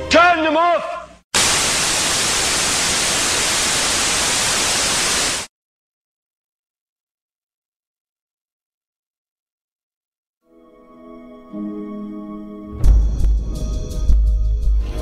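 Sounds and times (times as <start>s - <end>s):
television static hiss: 1.4s - 5.5s.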